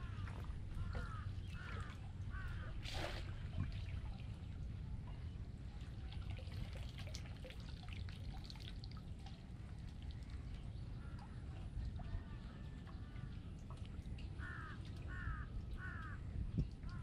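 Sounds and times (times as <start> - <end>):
water dripping and trickling: 5.8 - 17.0.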